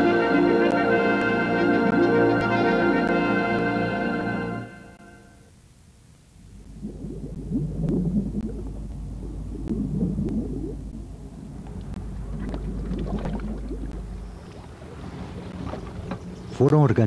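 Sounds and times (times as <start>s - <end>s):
steady low hum: 5.0s - 16.8s
underwater bubbles gurgling: 6.4s - 15.6s.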